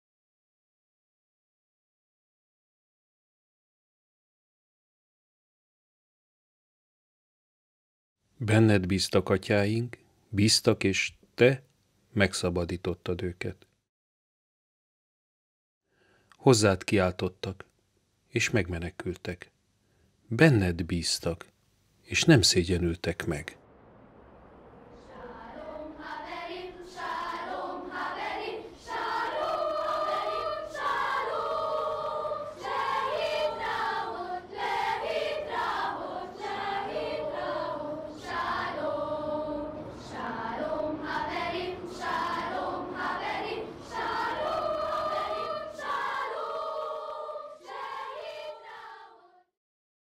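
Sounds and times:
choir of high voices singing: 24.9 - 49.5.

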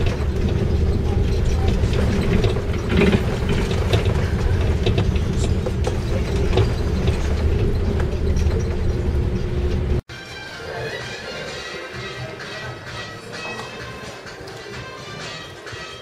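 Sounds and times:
bus engine and road rumble: 0.0 - 10.1.

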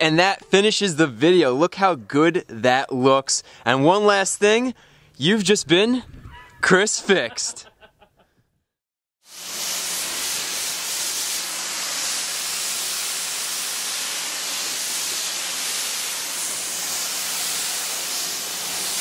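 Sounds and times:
pressure washer spraying water: 9.2 - 19.0.

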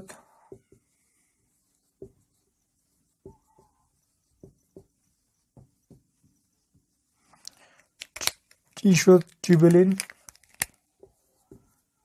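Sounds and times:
marker squeak: 2.3 - 6.6.

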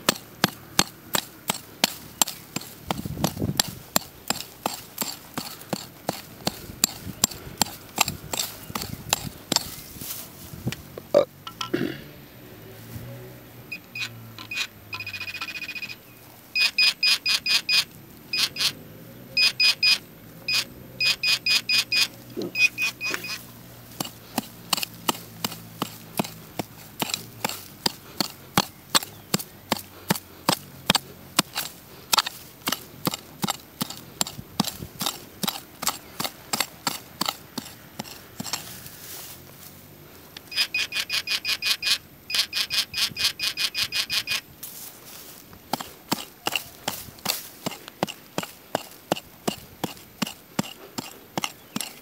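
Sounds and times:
metal detector clicking: 0.0 - 9.9, 13.7 - 18.8, 19.4 - 39.0, 40.3 - 52.0
metal detector beeping: 13.6 - 18.8, 19.4 - 25.2, 40.4 - 44.5.

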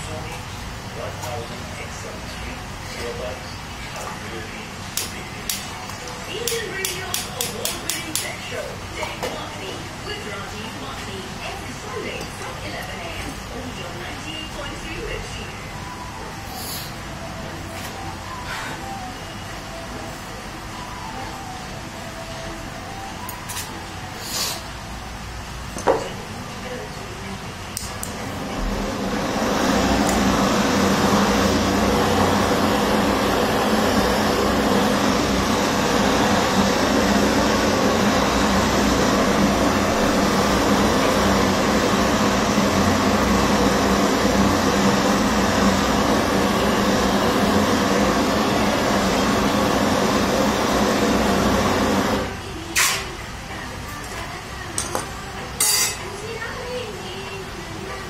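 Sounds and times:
gas torch flame rushing: 27.8 - 53.1.

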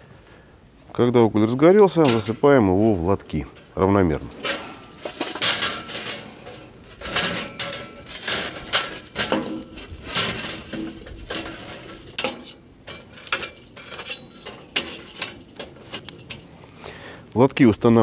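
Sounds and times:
charcoal clinking on metal trays: 1.9 - 17.1.

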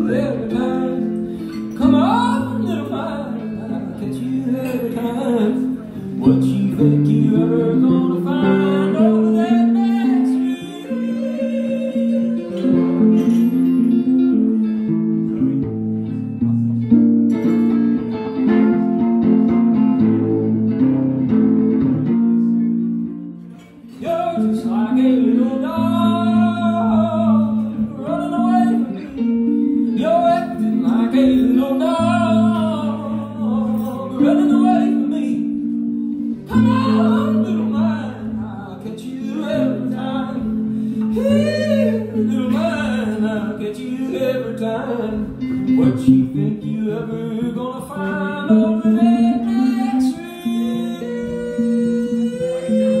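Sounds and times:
man singing: 0.0 - 16.9, 23.6 - 53.0
strummed guitar: 0.0 - 53.0.

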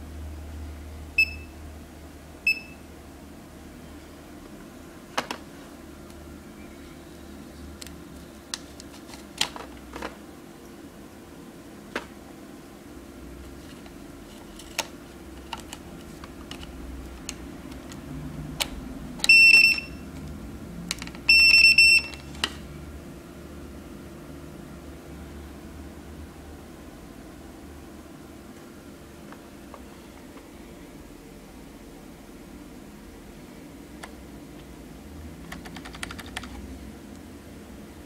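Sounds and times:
barcode scanner beeps: 2.5 - 2.8, 19.2 - 20.0, 21.3 - 22.3
plugs and cables clicking: 13.8 - 21.3.

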